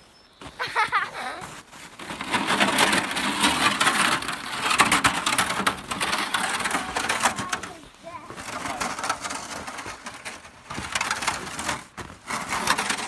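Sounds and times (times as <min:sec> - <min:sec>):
footsteps crunching through snow: 0:00.0 - 0:03.6, 0:07.6 - 0:13.0
plastic sled scraping on snow: 0:00.4 - 0:13.0.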